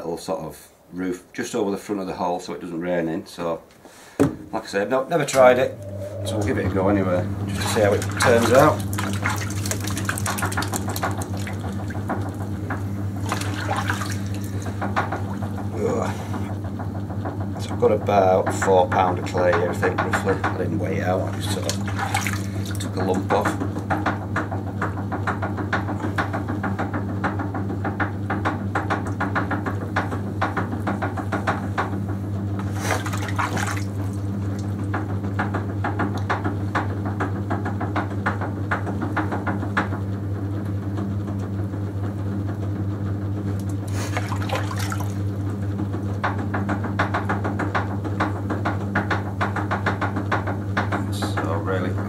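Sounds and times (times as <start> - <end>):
potter's wheel motor humming: 5.0 - 52.0
wet clay squelching and swishing: 7.5 - 12.5, 13.2 - 15.4, 21.2 - 23.0, 32.6 - 34.7.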